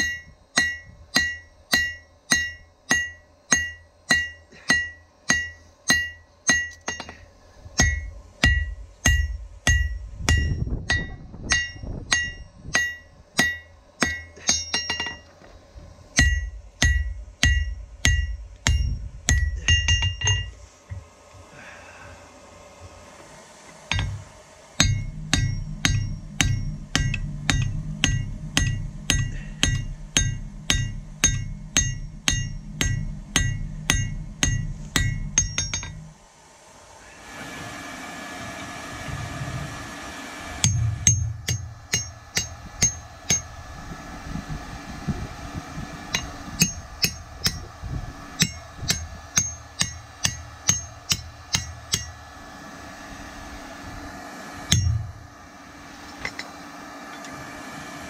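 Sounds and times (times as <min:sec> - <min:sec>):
hammer striking steel on anvil: 0:00.0 - 0:07.2, 0:07.8 - 0:15.3, 0:16.2 - 0:20.6, 0:23.9 - 0:24.2, 0:24.8 - 0:36.1, 0:40.6 - 0:43.6, 0:46.0 - 0:52.3, 0:54.7 - 0:55.2.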